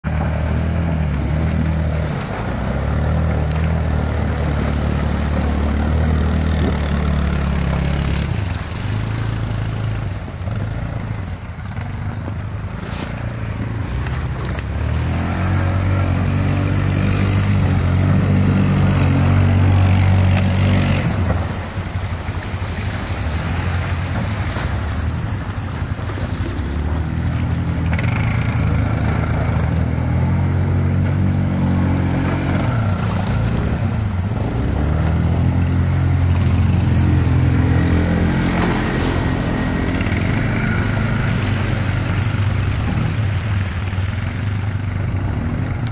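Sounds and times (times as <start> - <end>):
quad bike engines revving: 0.0 - 45.9.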